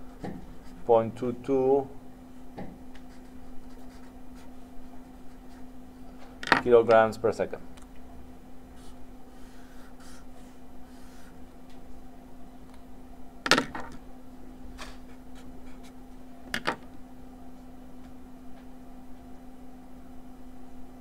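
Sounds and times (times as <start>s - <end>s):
low electrical hum: 0.0s - 21.0s
marker scratching on paper: 2.9s - 5.8s, 8.8s - 11.4s.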